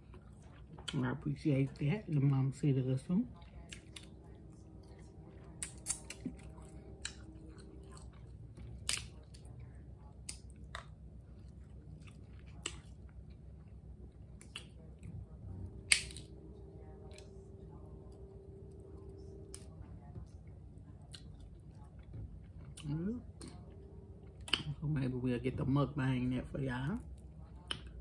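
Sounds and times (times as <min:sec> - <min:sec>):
chewing: 0:00.0 - 0:01.0, 0:03.2 - 0:15.3, 0:17.0 - 0:24.8
crab shell cracking: 0:15.9 - 0:16.3.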